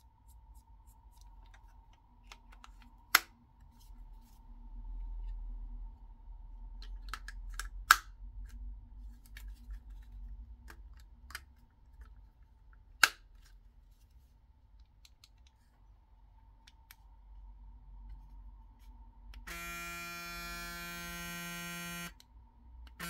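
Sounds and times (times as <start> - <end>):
sharp plastic snaps: 2.2 - 3.4, 6.8 - 8.6, 13.0 - 13.3.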